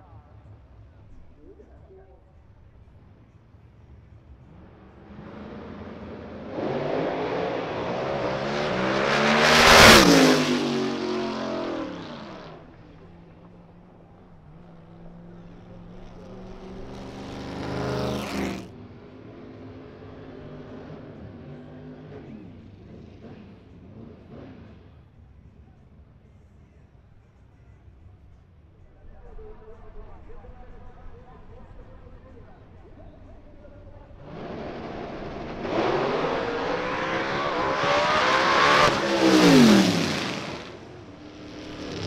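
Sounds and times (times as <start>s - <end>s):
race cars accelerating at full throttle: 4.3s - 25.2s, 34.0s - 42.0s
race engine revving hard: 5.0s - 12.6s, 16.6s - 18.7s, 34.2s - 42.0s
engines idling: 11.8s - 42.0s.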